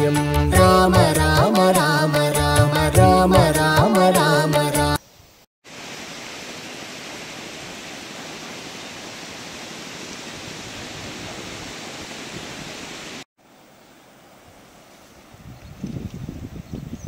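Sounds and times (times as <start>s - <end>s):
river rushing over rapids: 5.7s - 15.3s.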